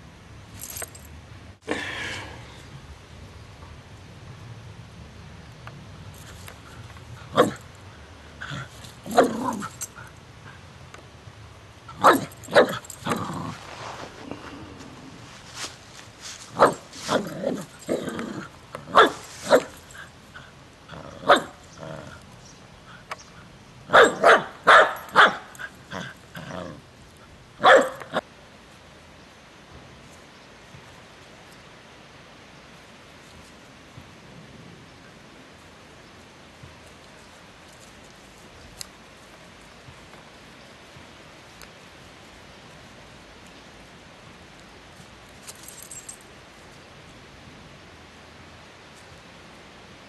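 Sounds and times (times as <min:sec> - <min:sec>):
dog barking: 0:12.0 - 0:12.8, 0:18.9 - 0:19.8, 0:21.2 - 0:21.6, 0:23.9 - 0:25.5, 0:27.6 - 0:28.2.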